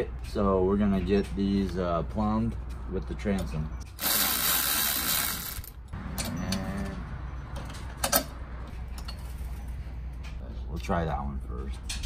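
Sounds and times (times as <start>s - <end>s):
cordless ratchet running: 3.9s - 5.8s.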